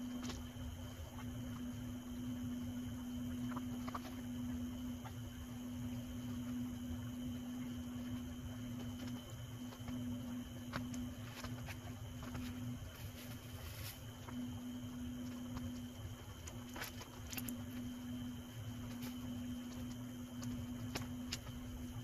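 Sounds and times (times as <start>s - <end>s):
low electrical hum: 0.0s - 22.0s
clothing rustling: 10.6s - 14.4s.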